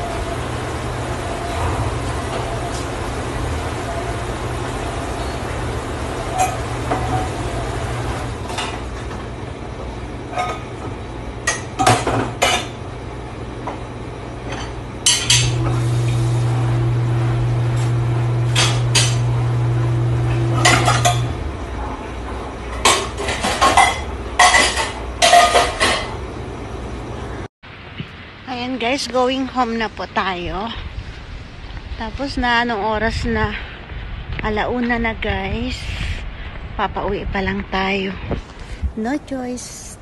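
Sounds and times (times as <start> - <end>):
machine hum: 0.0 - 27.5
metal dishes clattering: 20.6 - 21.4, 22.7 - 26.1.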